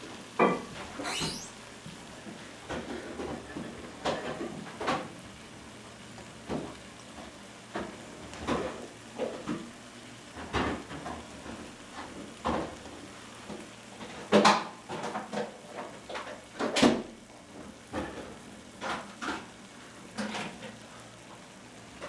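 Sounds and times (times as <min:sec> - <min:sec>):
food sizzling in a pan: 0:00.0 - 0:22.0
kitchen knocks and clatters: 0:14.2 - 0:17.1.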